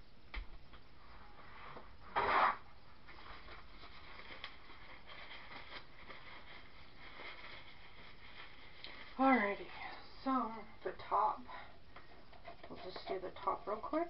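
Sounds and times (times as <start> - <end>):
faint rustling and handling: 0.9 - 14.0
rustling scrape: 1.0 - 9.8.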